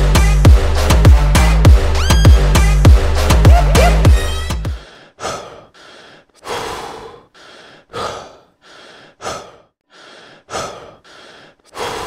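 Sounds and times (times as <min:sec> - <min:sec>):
person breathing heavily: 0:04.7 - 0:12.0.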